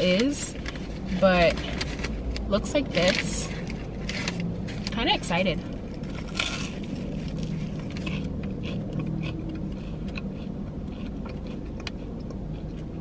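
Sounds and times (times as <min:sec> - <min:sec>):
crunchy chewing: 0:05.6 - 0:13.0
biting crisp pastry: 0:05.8 - 0:13.0.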